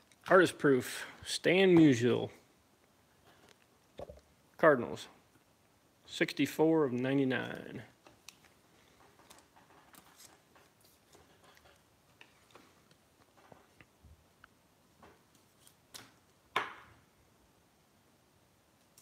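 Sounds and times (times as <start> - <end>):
cards clicking and rustling: 8.0 - 12.7.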